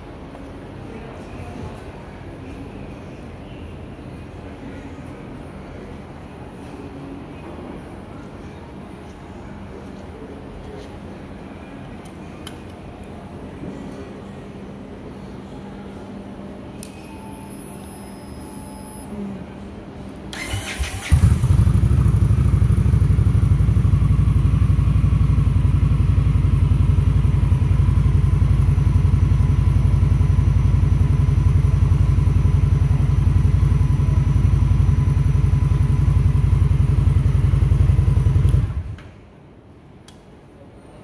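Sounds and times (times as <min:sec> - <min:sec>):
electric starter cranking: 0:20.3 - 0:21.6
motorcycle engine idling: 0:20.4 - 0:39.0.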